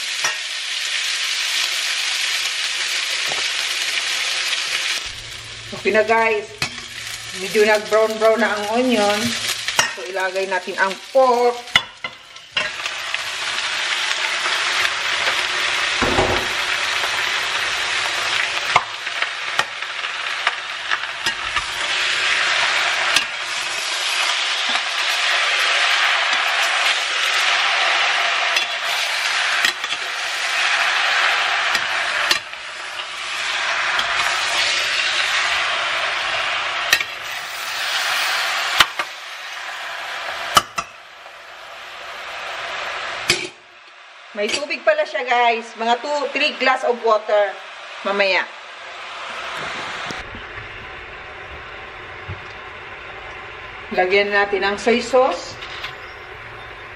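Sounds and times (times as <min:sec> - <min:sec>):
meat sizzling in oil: 0:00.0 - 0:43.6.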